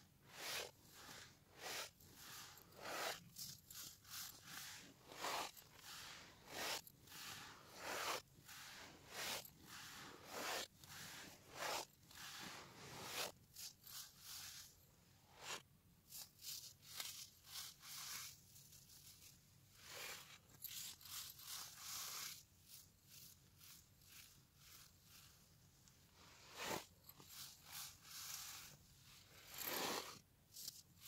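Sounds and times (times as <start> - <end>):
hands crunching baking soda powder: 0.4 - 3.2, 3.8 - 13.3.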